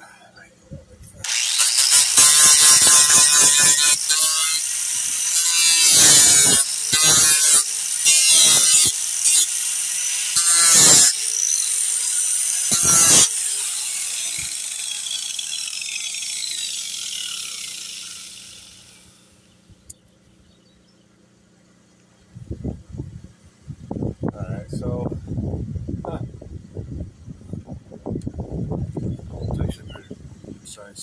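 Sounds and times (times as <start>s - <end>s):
grinding fiberglass: 1.2s - 19.5s
angle grinder whining: 1.2s - 19.9s.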